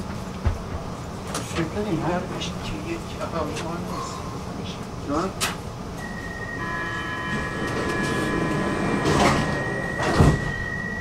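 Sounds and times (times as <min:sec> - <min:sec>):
metro train rumble: 0:00.0 - 0:11.0
high-pitched squeal: 0:06.0 - 0:11.0.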